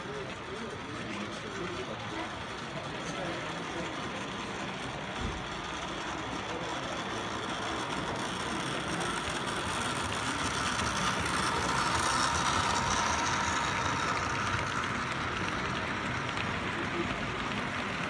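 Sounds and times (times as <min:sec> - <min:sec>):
model train running on rails: 0:00.0 - 0:18.0.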